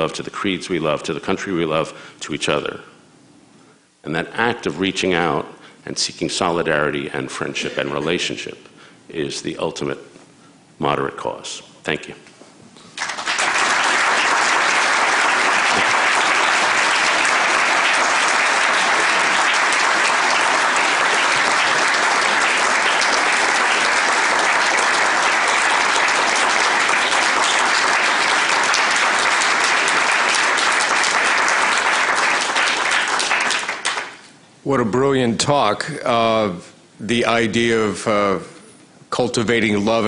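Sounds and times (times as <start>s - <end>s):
audience applause: 13.0s - 34.2s.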